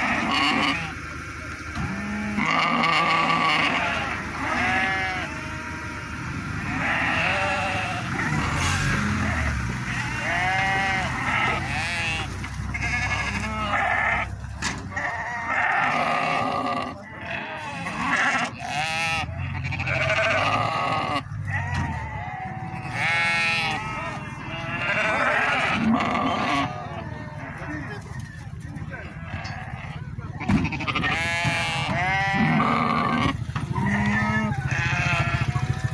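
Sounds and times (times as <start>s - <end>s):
sheep bleating: 0.0s - 1.0s, 1.8s - 6.0s, 6.6s - 14.3s, 14.9s - 28.0s, 29.0s - 35.9s.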